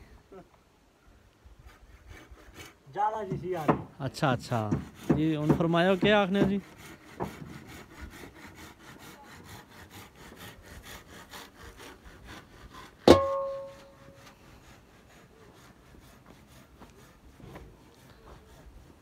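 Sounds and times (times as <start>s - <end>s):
hand saw rasping through wood: 1.6s - 19.0s
sharp ringing clang: 13.1s - 14.0s.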